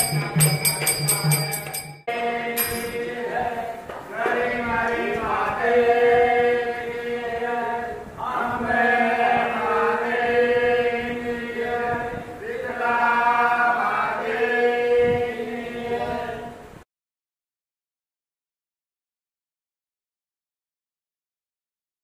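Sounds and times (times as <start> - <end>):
chorus chanting: 0.0 - 16.7.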